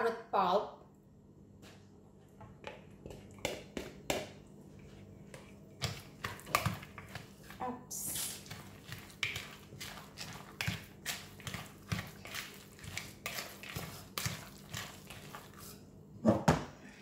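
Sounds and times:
spatula stirring wet batter: 2.4 - 16.0.

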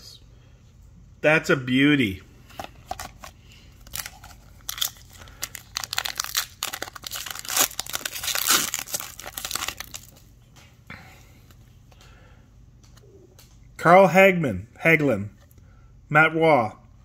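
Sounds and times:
wrapper tearing and crinkling: 2.6 - 10.2.

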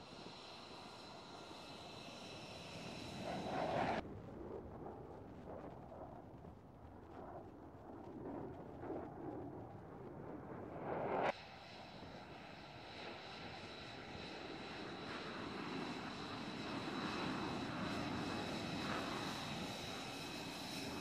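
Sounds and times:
jet passing overhead: 0.0 - 4.0, 9.2 - 21.0
jet engine rumble at taxi power: 0.0 - 21.0.

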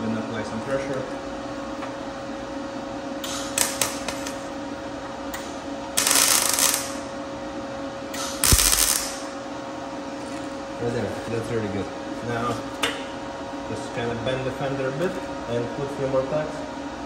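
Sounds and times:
steady hum: 0.0 - 17.0
arc welding crackling hiss: 3.3 - 4.4, 6.0 - 7.0, 8.2 - 9.3.

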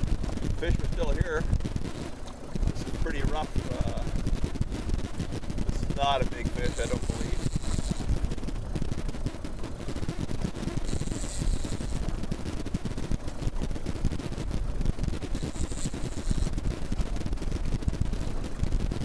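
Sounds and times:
wind buffeting microphone: 0.0 - 19.0.

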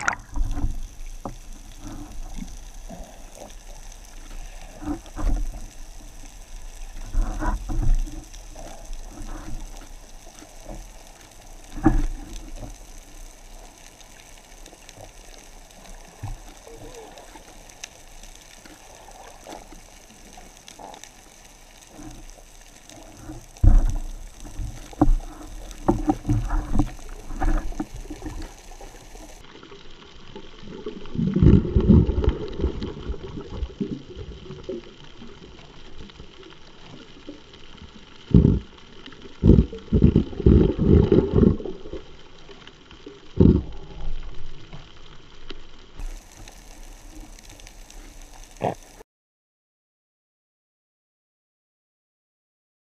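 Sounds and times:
underwater water churning hiss: 0.0 - 29.4, 46.0 - 49.0.

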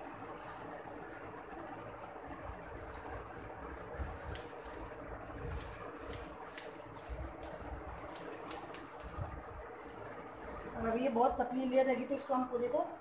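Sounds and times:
scissors snipping hair: 4.2 - 4.8, 5.5 - 9.1.

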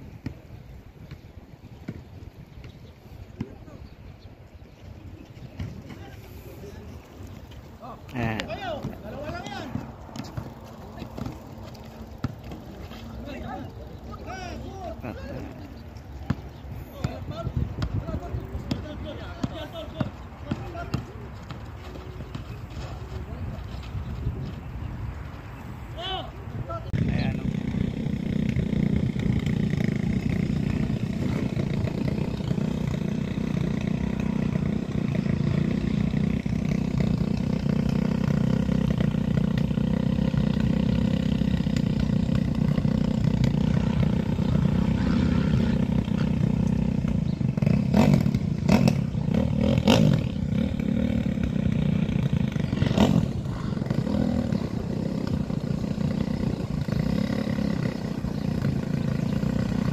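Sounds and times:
dirt bike engines rumbling: 0.0 - 59.9
dirt bike engine revving: 27.0 - 59.9.

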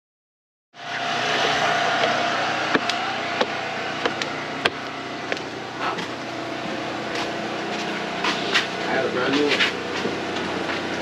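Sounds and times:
footsteps on wooden stairs: 2.0 - 8.8.

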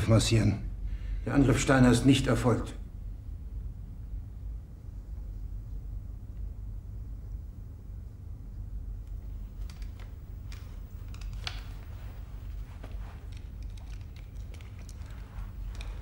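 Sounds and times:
low room rumble: 0.0 - 16.0
faint clicks and rustles: 9.0 - 16.0.

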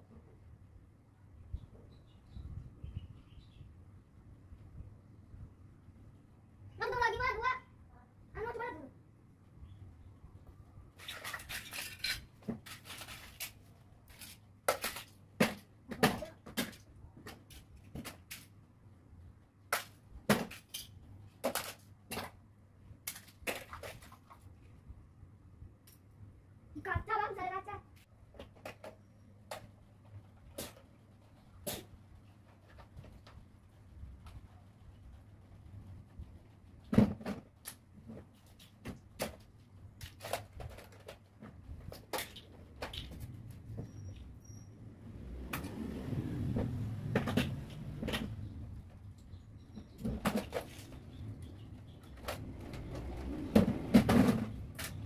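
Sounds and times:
plastic toys clattering: 10.9 - 18.6, 19.7 - 24.6, 28.2 - 33.4, 36.3 - 43.7, 49.8 - 55.0.

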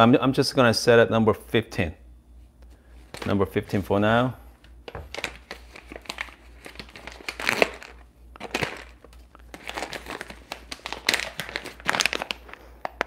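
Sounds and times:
bag crinkling: 4.9 - 13.0.

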